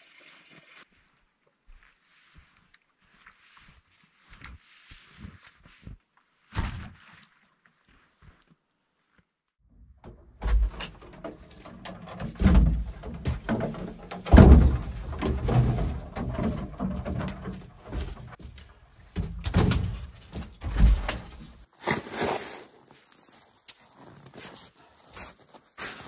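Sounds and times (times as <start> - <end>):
knocks and rattles: 9.7 - 21.7
heavy thumps: 9.9 - 21.6
wooden door shutting: 10.0 - 17.6, 19.2 - 21.6.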